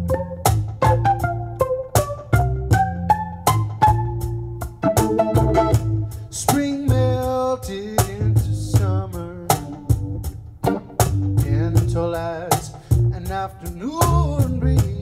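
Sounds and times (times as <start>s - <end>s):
percussive beat: 0.0s - 15.0s
violin strummed and plucked: 0.0s - 15.0s.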